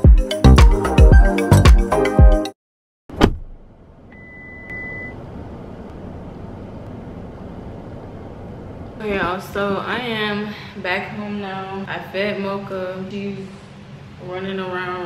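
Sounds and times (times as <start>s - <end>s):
distant traffic: 3.5s - 15.0s
access reader electronic beep: 4.1s - 5.2s.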